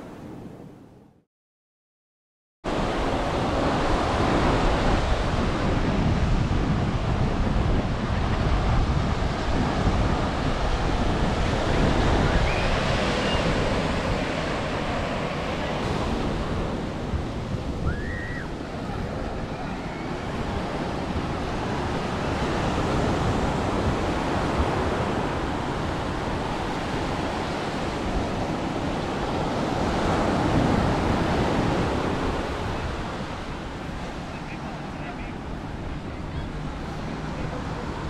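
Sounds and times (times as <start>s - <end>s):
surf breaking on a beach: 2.7s - 38.0s
wind rumbling on microphone: 2.7s - 38.0s.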